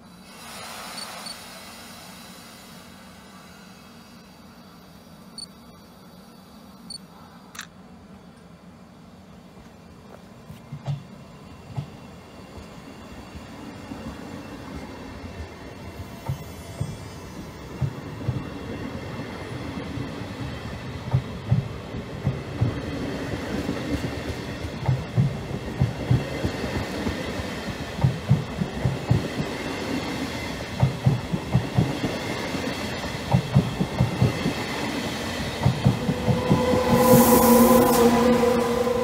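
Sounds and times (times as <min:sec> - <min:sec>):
train wheels rumbling and clacking: 0:09.5 - 0:39.0.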